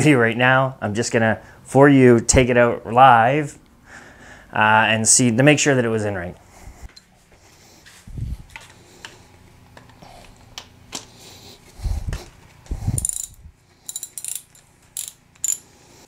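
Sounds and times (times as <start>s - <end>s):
ratcheting wrench clicking: 13.0s - 15.7s.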